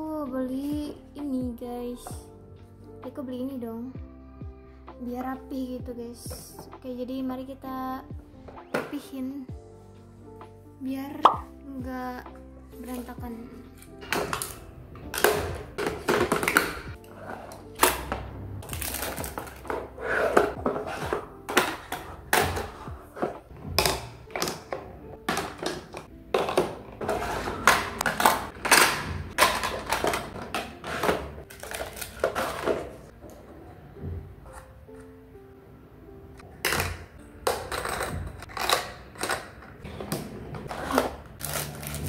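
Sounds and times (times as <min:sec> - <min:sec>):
soft music: 0:00.0 - 0:42.0
cosmetics tapping on plastic: 0:14.0 - 0:17.0, 0:18.8 - 0:33.0.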